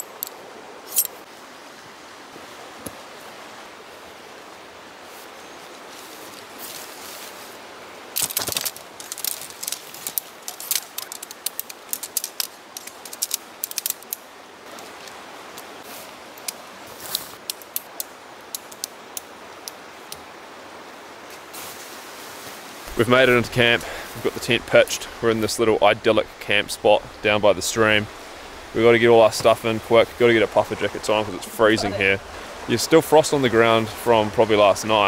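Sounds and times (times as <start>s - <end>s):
tent poles clicking together: 0.0s - 1.2s, 8.2s - 20.2s
steady background hiss: 0.0s - 35.0s.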